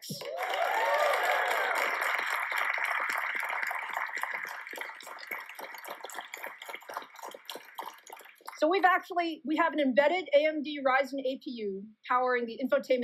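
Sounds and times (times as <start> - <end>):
applause: 0.0 - 8.9.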